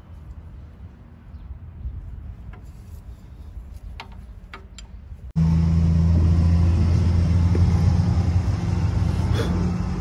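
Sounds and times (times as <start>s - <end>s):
diesel engine idling: 5.4s - 10.0s.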